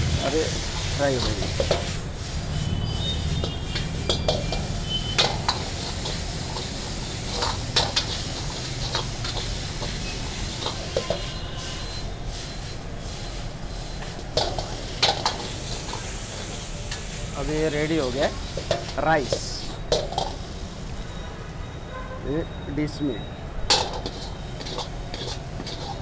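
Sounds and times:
rice sizzling in a wok: 0:00.0 - 0:21.3, 0:23.7 - 0:26.0
metal ladle scraping and knocking pan: 0:00.7 - 0:02.0, 0:03.2 - 0:11.5, 0:14.0 - 0:17.1, 0:18.4 - 0:20.4, 0:23.7 - 0:26.0.

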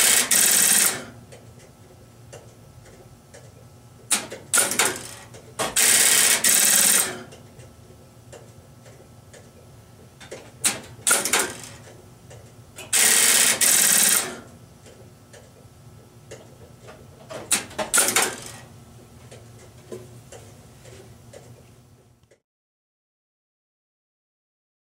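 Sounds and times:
rapid stepping switch clatter: 0:02.3 - 0:07.4, 0:10.2 - 0:15.5, 0:17.2 - 0:18.7.

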